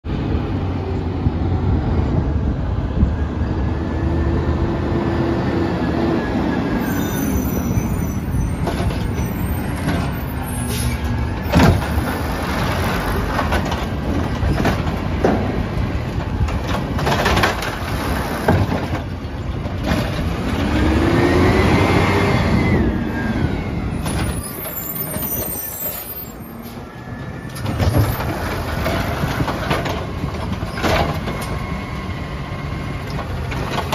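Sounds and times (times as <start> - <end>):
diesel truck engine: 0.1 - 33.9
cart knocking and clanking on metal: 11.1 - 20.4, 27.5 - 31.6.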